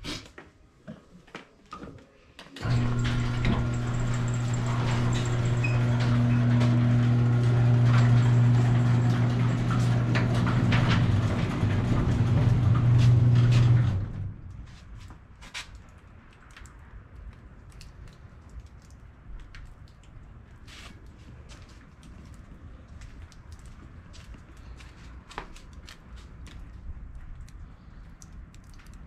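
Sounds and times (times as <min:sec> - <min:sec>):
machine humming low: 0:02.6 - 0:14.6.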